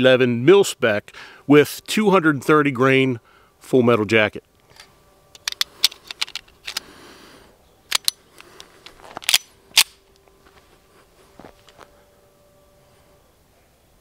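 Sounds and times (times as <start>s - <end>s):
pistol being loaded clicks and clacks: 4.7s - 6.9s, 7.9s - 10.0s.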